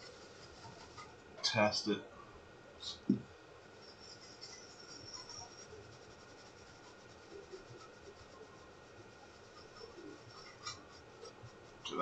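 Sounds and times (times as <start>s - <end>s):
brush scrubbing circuit board: 0.0s - 1.2s, 3.8s - 12.0s.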